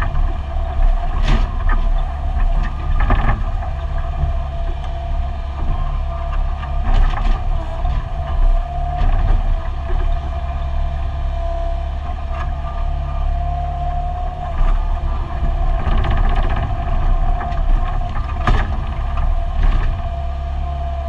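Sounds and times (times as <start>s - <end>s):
excavator diesel engine running: 0.0s - 21.0s
excavator bucket clanking: 14.5s - 20.4s.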